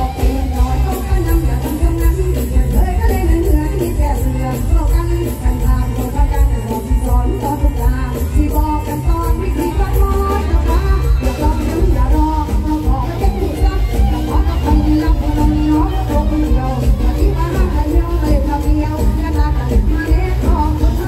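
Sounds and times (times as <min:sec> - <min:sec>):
loud live music with heavy bass: 0:00.0 - 0:21.0
woman singing over a band: 0:00.0 - 0:21.0.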